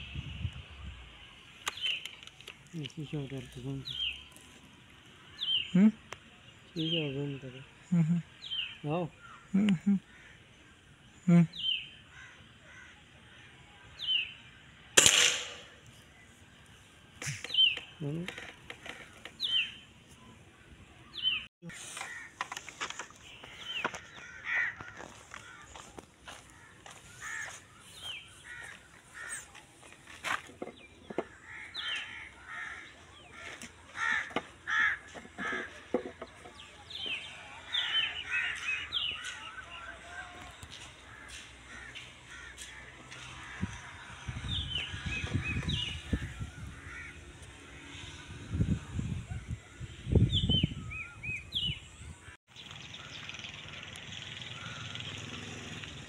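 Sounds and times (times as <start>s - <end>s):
bird calls: 0.0s - 14.6s, 15.5s - 48.3s, 49.2s - 56.0s
gunshot crack: 15.0s - 15.8s.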